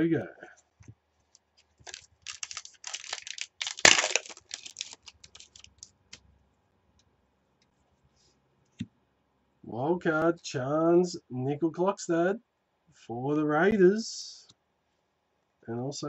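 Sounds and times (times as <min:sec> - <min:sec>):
cards crinkling and rustling: 0:01.3 - 0:06.2
card pack wrapper tearing: 0:01.8 - 0:06.2.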